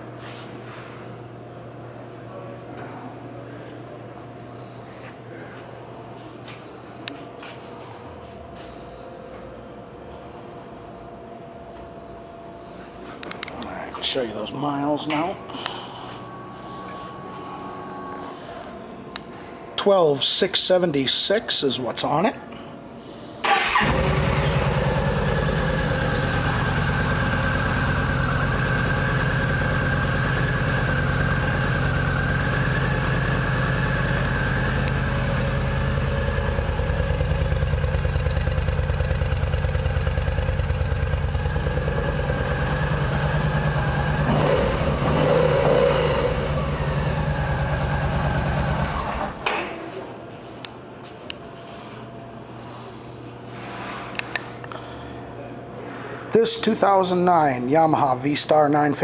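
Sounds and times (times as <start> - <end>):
motorcycle engine idling: 23.5 - 49.3.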